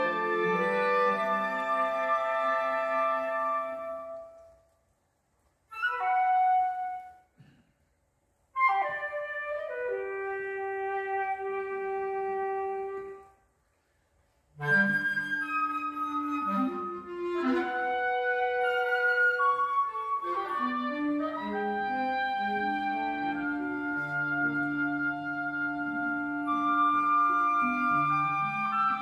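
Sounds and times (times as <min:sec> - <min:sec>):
woodwind and cello chamber music: 0:00.0 - 0:04.6, 0:05.7 - 0:07.3, 0:08.6 - 0:13.4, 0:14.5 - 0:29.0.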